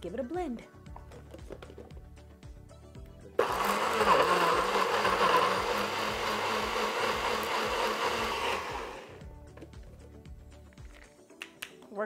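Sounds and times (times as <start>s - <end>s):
blender running: 3.4s - 9.2s.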